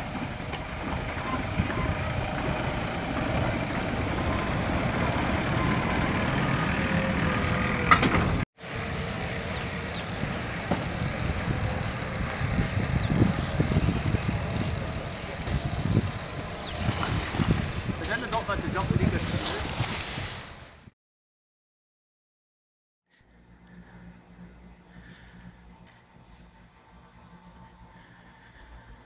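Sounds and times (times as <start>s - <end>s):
electric locomotive running: 0.0s - 18.9s, 23.4s - 29.0s
faint steady tones: 23.2s - 29.0s.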